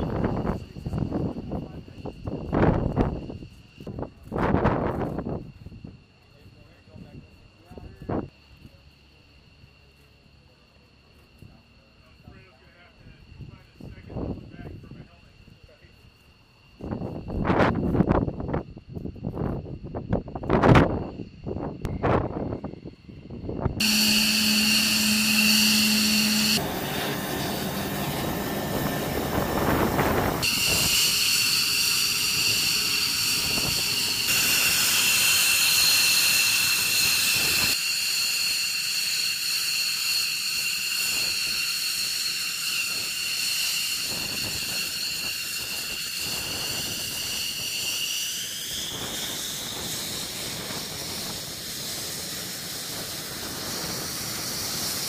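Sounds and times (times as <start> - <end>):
jet turbine whine: 0.0 - 8.0, 12.3 - 55.0
loud jet hiss: 23.8 - 55.0.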